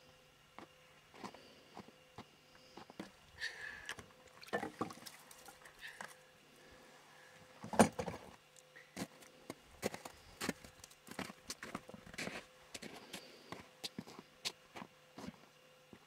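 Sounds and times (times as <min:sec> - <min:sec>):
footsteps on packed snow: 0:09.0 - 0:15.4.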